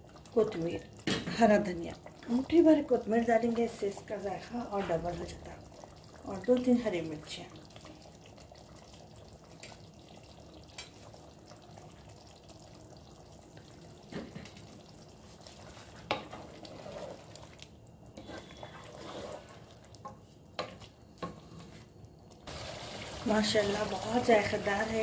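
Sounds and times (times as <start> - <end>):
low sizzle: 0.0 - 25.0
spatula stirring curry in pot: 15.2 - 21.7.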